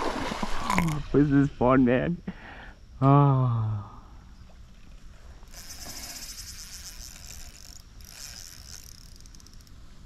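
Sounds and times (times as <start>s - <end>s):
fishing reel ratcheting: 4.7s - 9.8s.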